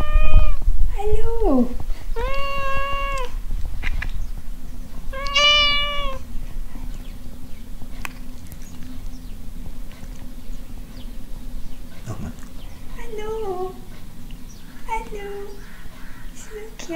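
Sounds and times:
cat meowing: 0.0 - 0.6, 2.1 - 3.4, 5.1 - 6.3.

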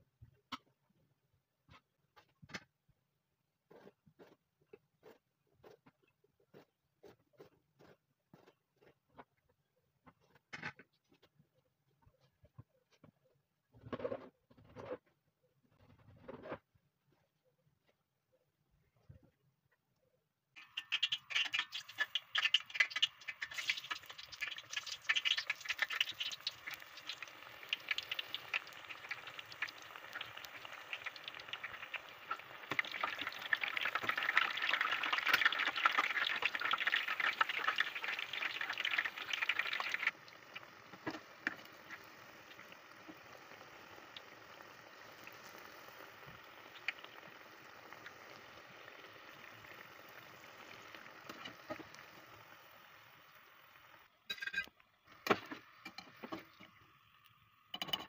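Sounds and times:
frying in hot oil: 20.6 - 58.0.

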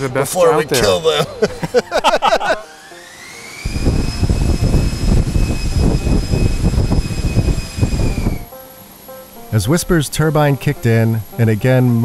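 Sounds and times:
electric fan whine: 0.6 - 12.0
low rush of moving air: 3.6 - 8.6.

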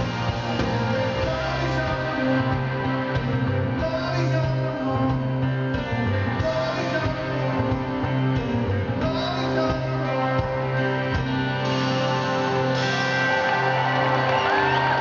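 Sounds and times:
rock band playing live: 0.0 - 15.0
man singing: 0.8 - 11.2.

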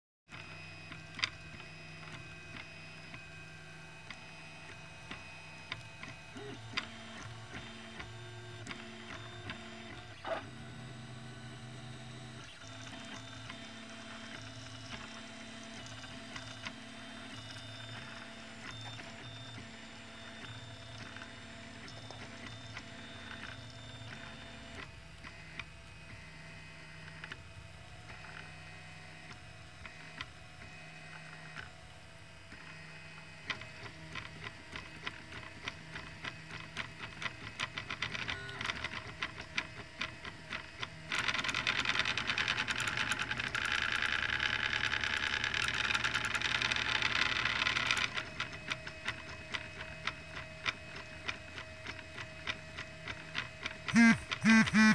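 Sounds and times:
stepper motors whining: 43.1 - 54.9.

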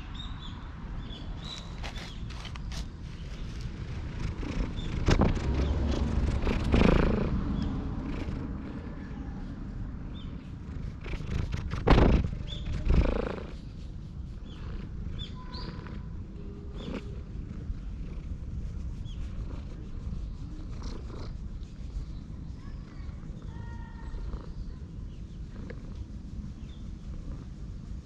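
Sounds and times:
cat purring: 1.8 - 28.0
bumps and scuffs on microphone: 10.9 - 13.6.

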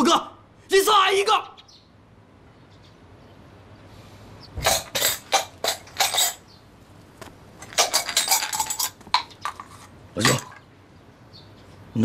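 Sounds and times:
coins shaken and clinking: 7.6 - 9.8.

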